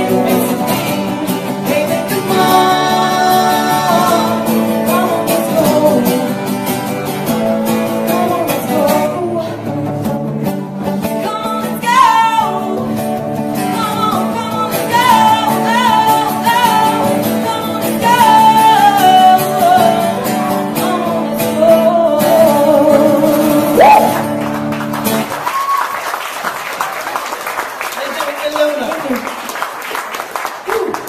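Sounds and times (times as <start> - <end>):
woman singing: 0.0 - 6.8, 7.8 - 24.2
acoustic guitar: 0.0 - 27.2
people clapping: 23.8 - 31.0.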